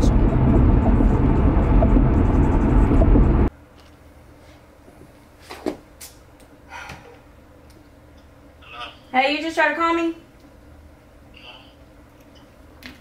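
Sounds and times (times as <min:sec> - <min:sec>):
car cabin road noise: 0:00.0 - 0:03.5.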